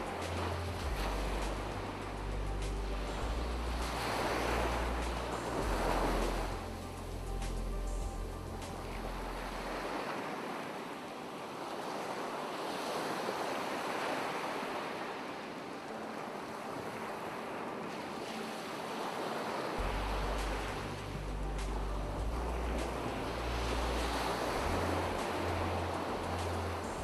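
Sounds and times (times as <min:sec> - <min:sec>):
low steady hum: 0:00.0 - 0:09.7, 0:19.8 - 0:27.0
ocean surf breaking on shore: 0:00.0 - 0:27.0.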